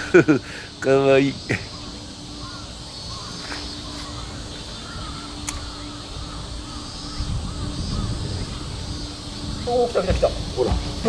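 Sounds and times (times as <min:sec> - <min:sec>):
wind rumble on microphone: 0:04.7 - 0:11.0
sharp click: 0:05.4 - 0:05.7.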